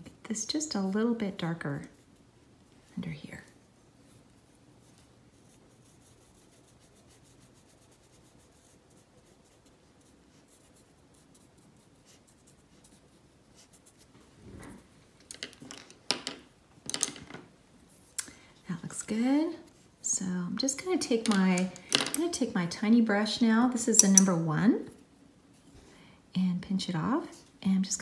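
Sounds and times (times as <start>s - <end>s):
brush dabbing on paper: 0.5s - 14.2s.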